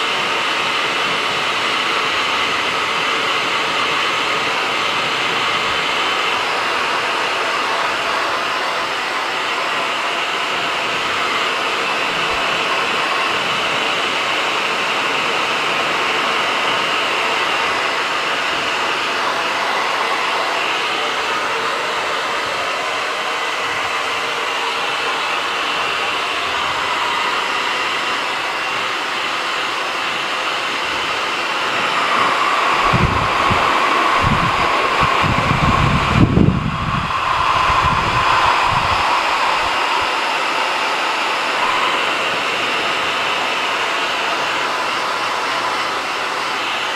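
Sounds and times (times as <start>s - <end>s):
hair dryer running: 0.0s - 46.9s
low gusty air buffeting: 30.9s - 44.0s.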